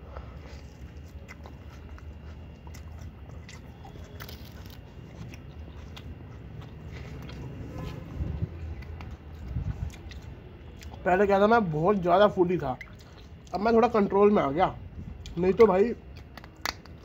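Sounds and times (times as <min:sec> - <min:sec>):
person biting and chewing: 0:00.0 - 0:11.1, 0:15.2 - 0:17.0
steady low hum: 0:00.0 - 0:17.0
small crunching clicks: 0:15.2 - 0:17.0.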